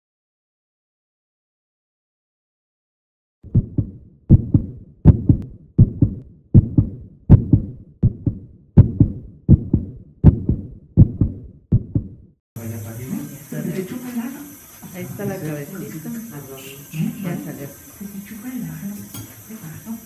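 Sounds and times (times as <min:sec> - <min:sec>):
heartbeat thumps: 0:03.4 - 0:12.3.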